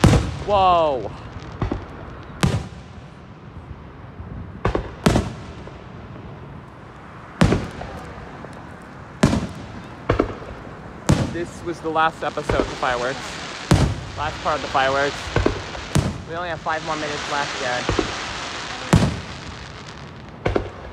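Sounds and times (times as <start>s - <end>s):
firework shells bursting: 0.0s - 2.8s, 6.6s - 20.9s.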